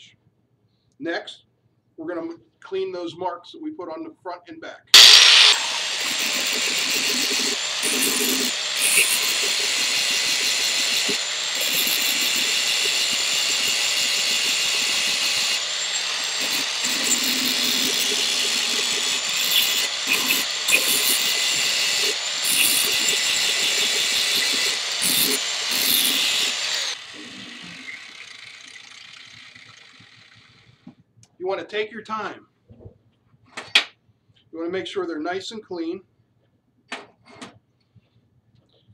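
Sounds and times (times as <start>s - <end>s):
angle grinder grinding steel: 5.0s - 30.1s
grinder winding down: 5.0s - 30.7s.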